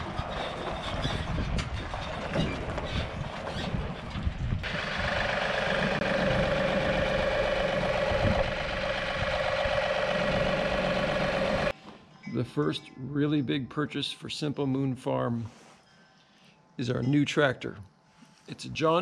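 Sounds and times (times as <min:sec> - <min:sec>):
tractor diesel engine: 0:00.0 - 0:11.7
constant whine: 0:03.7 - 0:11.7.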